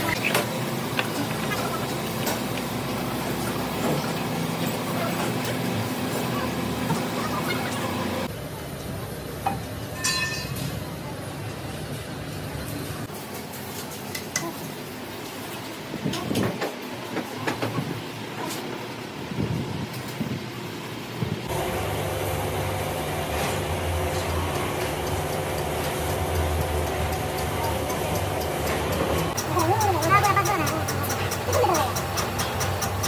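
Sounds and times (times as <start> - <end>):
steady machine hum: 20.8 - 33.0.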